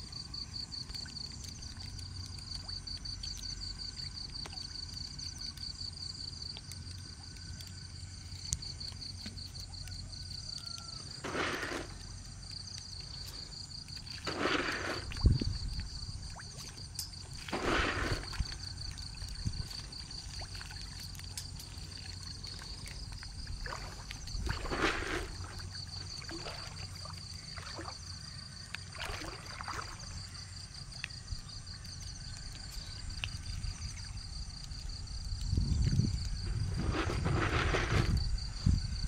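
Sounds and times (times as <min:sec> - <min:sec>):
high pulsing insect trill: 0:00.0 - 0:39.0
water swishing and splashing: 0:11.2 - 0:30.9, 0:35.7 - 0:38.2.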